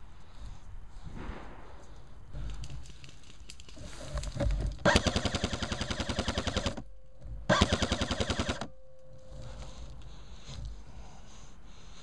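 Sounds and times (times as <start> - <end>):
airsoft rifle firing bursts: 4.8 - 6.8, 7.5 - 8.7.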